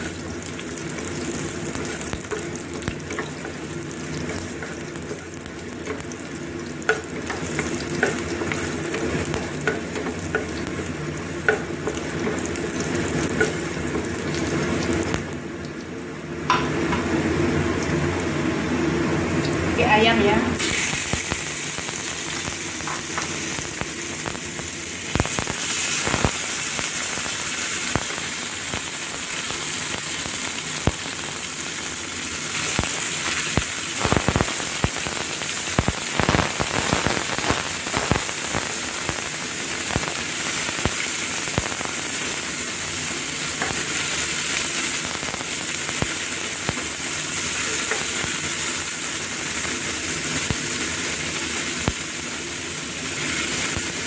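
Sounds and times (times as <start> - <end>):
food sizzling in oil: 0.0 - 54.0.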